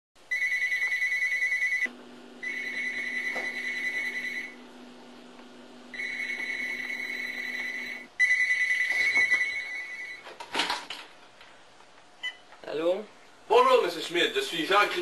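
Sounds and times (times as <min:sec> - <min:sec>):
alarm clock pulsing beep: 0:00.3 - 0:04.6, 0:05.9 - 0:10.1.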